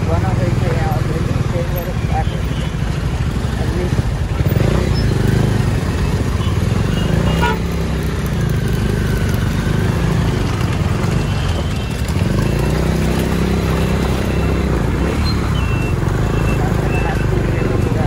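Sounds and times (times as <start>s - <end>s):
motorcycle engine running: 0.0s - 18.0s
passing motorbikes and cars: 0.0s - 18.0s
road and wind noise: 0.0s - 18.0s.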